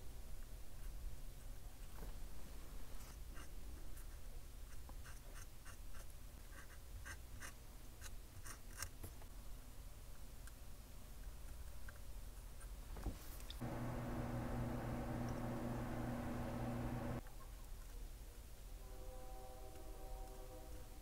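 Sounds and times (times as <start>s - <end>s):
steady low hum: 13.6s - 17.2s.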